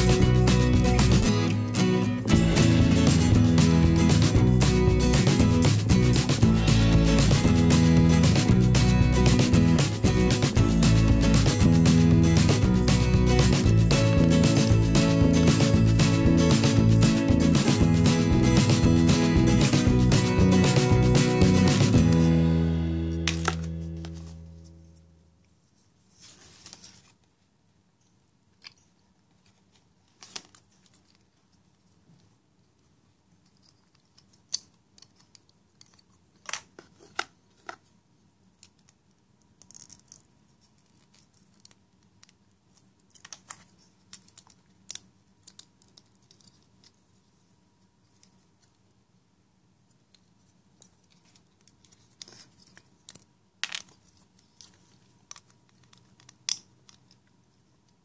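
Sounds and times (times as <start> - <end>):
plastic toy parts clicking: 33.4 - 37.8, 38.6 - 47.0, 54.6 - 57.3.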